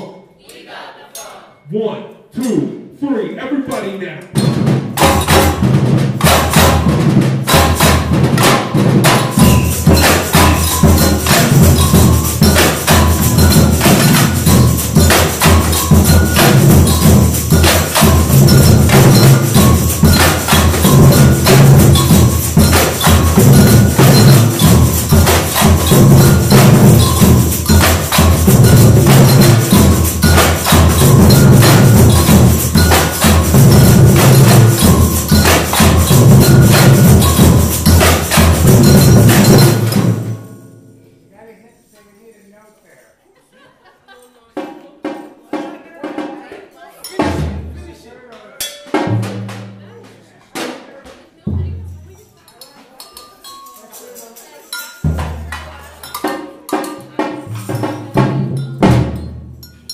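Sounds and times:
sharp clicking percussion strokes: 0.4 - 2.7, 3.7 - 41.2, 44.1 - 59.9
bass drums beating: 4.3 - 40.4.

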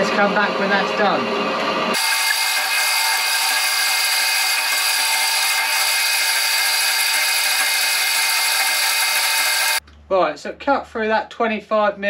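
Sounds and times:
bandsaw cutting steel: 1.9 - 9.8.

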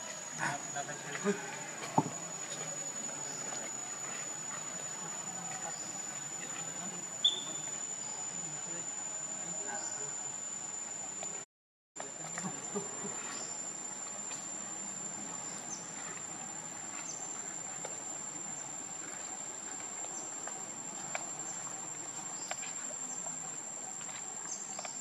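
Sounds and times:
insects chirring: 0.0 - 11.4, 12.0 - 25.0
faint ticks and rustles: 12.0 - 25.0.

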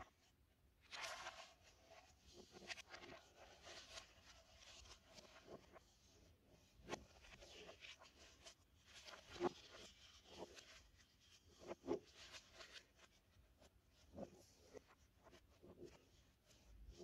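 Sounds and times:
paper pages rustling: 0.9 - 1.5.

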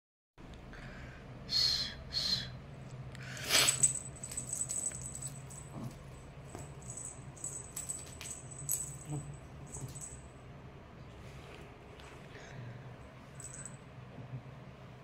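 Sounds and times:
faint low hum: 0.4 - 15.0
small bell jingling: 3.6 - 10.4, 13.3 - 13.8.

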